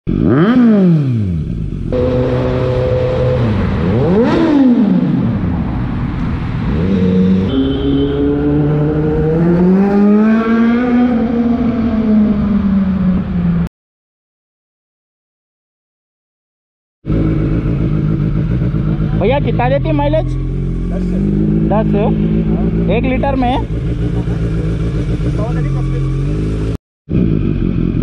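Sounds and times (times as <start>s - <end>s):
motorcycle engine revving: 0.1s - 13.6s, 17.0s - 28.0s.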